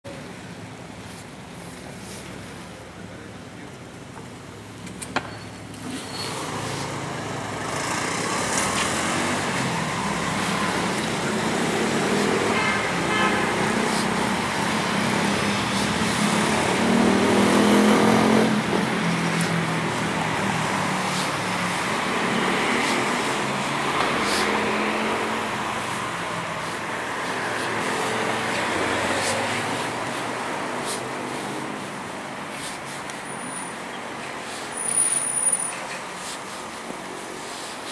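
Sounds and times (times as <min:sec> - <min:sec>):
cars passing on street: 0:00.0 - 0:37.9.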